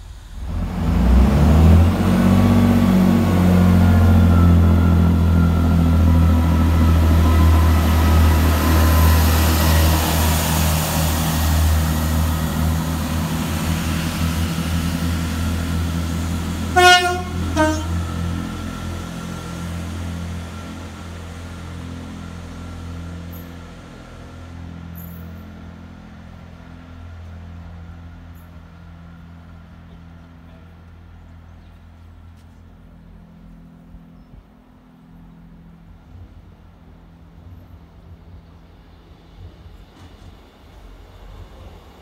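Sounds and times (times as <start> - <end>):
train running past: 0.0 - 42.0
train horn: 16.6 - 18.6.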